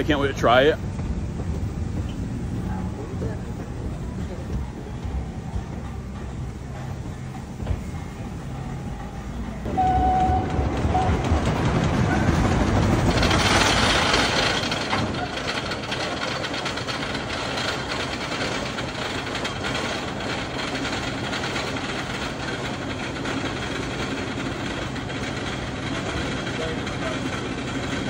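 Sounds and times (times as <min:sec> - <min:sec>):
rushing noise: 0:00.0 - 0:26.6
roller coaster chain lift clatter: 0:08.9 - 0:28.0.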